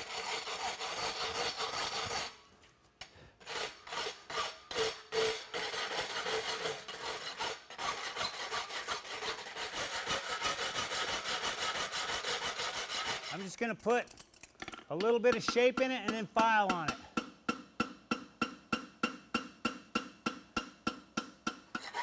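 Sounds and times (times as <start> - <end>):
rasp scraping metal horseshoe: 0.0 - 2.4, 3.4 - 19.2, 21.2 - 22.0.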